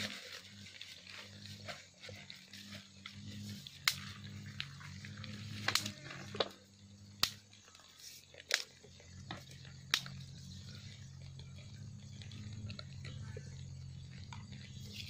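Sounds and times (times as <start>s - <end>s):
steady low hum: 0.0s - 15.0s
dry twigs snapping: 3.8s - 4.7s, 7.2s - 7.4s, 8.4s - 8.7s, 9.3s - 10.2s.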